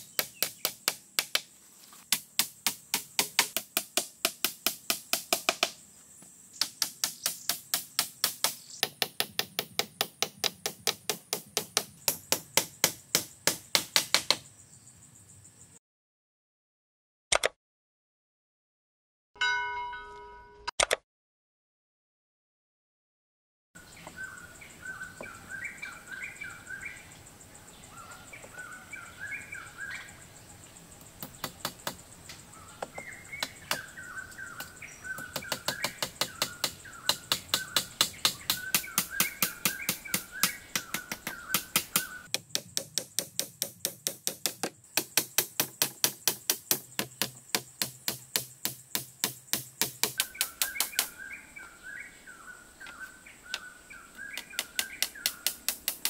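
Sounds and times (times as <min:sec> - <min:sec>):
birds chirping: 0:00.0 - 0:01.2, 0:23.8 - 0:56.0
fast sharp knocking: 0:34.6 - 0:51.1.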